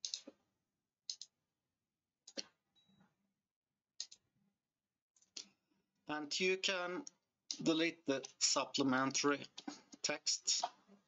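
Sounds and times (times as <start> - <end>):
computer mouse clicks: 0.0 - 0.3, 1.1 - 1.3, 2.3 - 2.5, 4.0 - 4.2.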